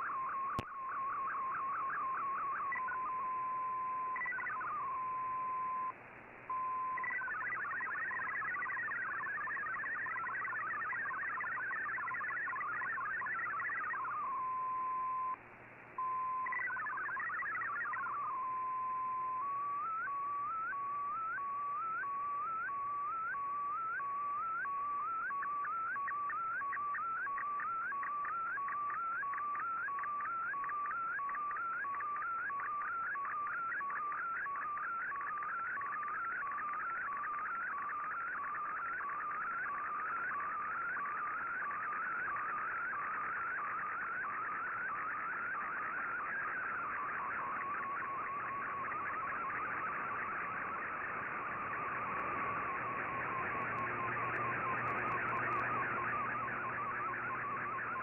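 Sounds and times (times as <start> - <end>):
warbling data burst: 6.8 - 14.2, 16.3 - 18.3, 25.1 - 58.0
repeating rising chirps: 39.2 - 58.0.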